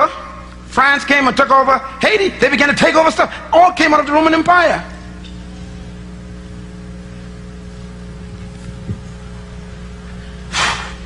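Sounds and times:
low electrical hum with hiss: 0:00.0 - 0:11.0
breathy noise burst: 0:10.5 - 0:11.0.

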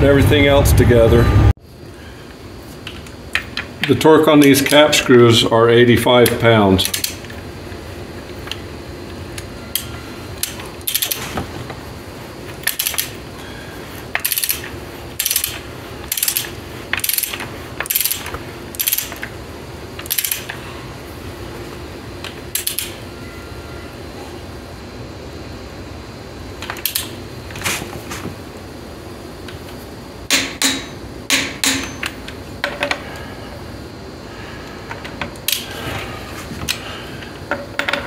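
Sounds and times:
ratchet wrench clicking: 0:06.2 - 0:07.3, 0:09.8 - 0:11.2, 0:12.6 - 0:13.2, 0:14.1 - 0:19.3, 0:20.0 - 0:20.6, 0:22.5 - 0:22.9.

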